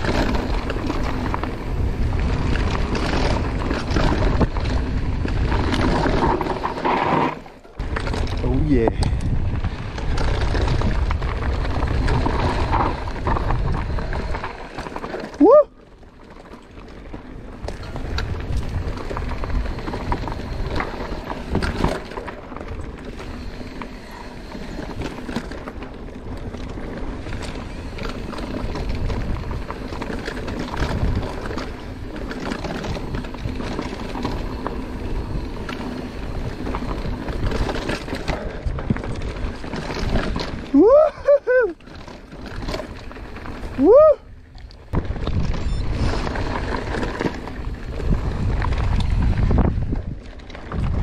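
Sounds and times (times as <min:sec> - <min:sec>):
bike rattling: 0:00.0 - 0:51.0
tyres crunching over gravel: 0:00.0 - 0:51.0
wind rumbling on microphone: 0:00.0 - 0:51.0
short rising squeal: 0:45.5 - 0:46.2.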